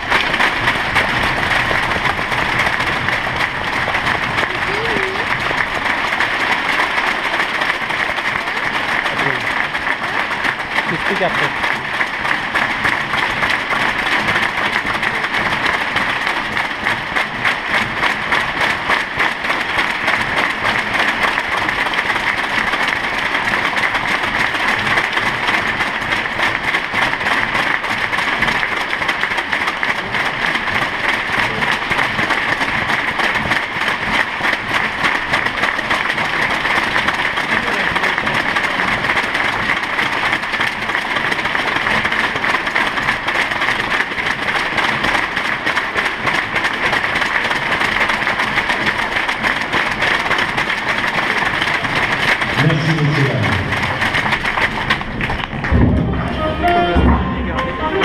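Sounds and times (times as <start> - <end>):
crowd applauding: 0.0 - 58.0.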